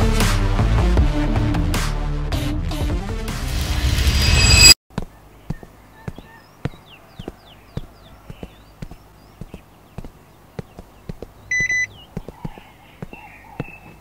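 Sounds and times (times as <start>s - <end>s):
footsteps on hard walkway: 4.9s - 14.0s
small birds chirping: 4.9s - 14.0s
car electronic chirp: 11.5s - 11.9s.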